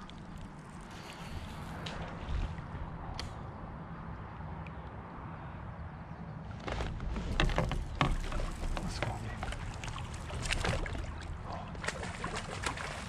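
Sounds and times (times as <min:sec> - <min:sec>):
water splashing around kayak: 0:06.6 - 0:13.0.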